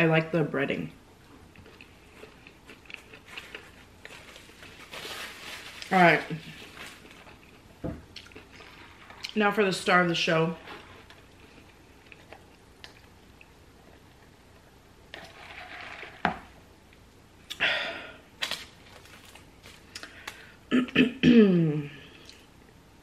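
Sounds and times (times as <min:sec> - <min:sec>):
wrapper paper rustling: 0:03.3 - 0:07.2, 0:18.4 - 0:19.9.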